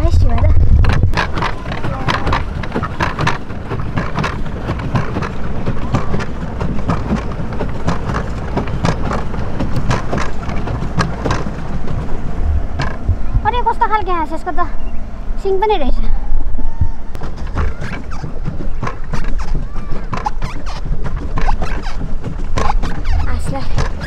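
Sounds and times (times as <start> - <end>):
water splashing and churning: 0.0 - 24.0
wind rumbling on microphone: 0.0 - 24.0.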